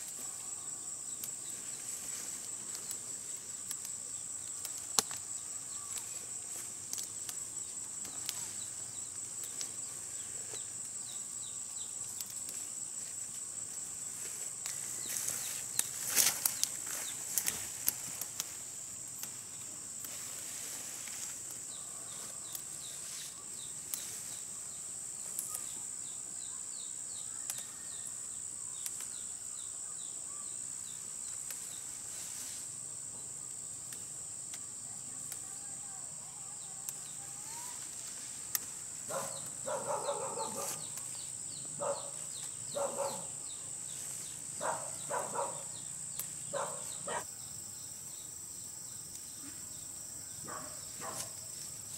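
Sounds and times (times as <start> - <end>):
leaves rustling and snapping: 0.0 - 11.0, 12.0 - 24.5, 25.2 - 25.8, 27.4 - 27.8, 28.8 - 29.2, 31.3 - 32.5, 33.8 - 34.6, 36.8 - 43.2, 43.8 - 47.0, 50.9 - 51.9
insects droning: 0.0 - 51.9.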